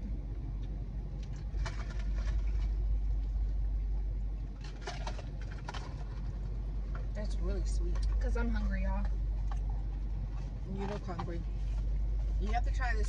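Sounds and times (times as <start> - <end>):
car engine hum inside cabin: 0.0 - 13.0
eating sounds: 7.9 - 11.1.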